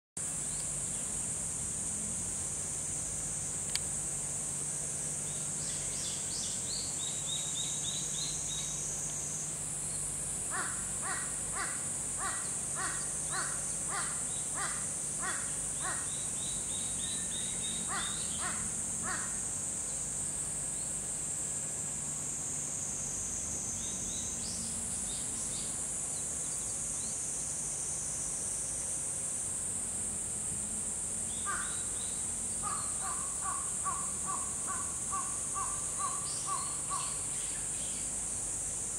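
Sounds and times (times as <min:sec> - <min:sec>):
high insect drone: 0:00.2 - 0:38.9
bird calling evenly spaced notes: 0:05.1 - 0:21.0, 0:31.2 - 0:38.6.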